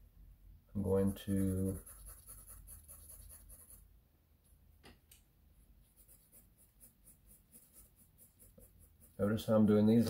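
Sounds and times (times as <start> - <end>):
pencil scratching on paper: 0.8 - 3.8, 5.8 - 10.0.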